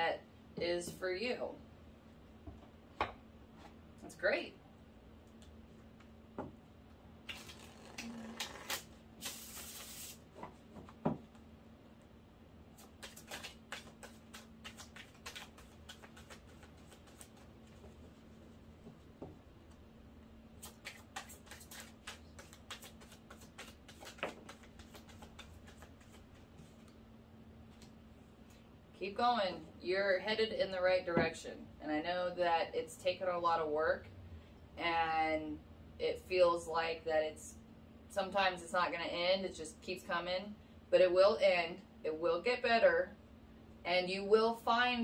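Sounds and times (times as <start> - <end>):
cards clicking and flicking: 12.8 - 17.5, 20.6 - 26.4
cards riffling: 12.8 - 17.5, 20.6 - 26.4.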